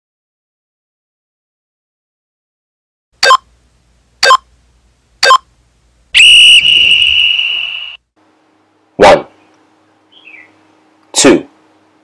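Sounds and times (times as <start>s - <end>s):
short sharp beeps: 3.2s - 3.5s, 4.2s - 4.4s, 5.2s - 5.5s, 6.2s - 8.0s
long high whistle blast: 6.2s - 8.0s.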